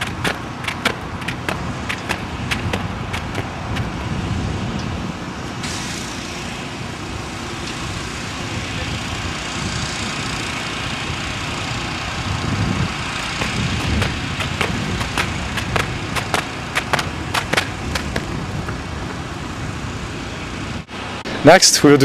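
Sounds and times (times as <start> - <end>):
running shoes striking track: 0.0 - 4.2, 13.0 - 19.2.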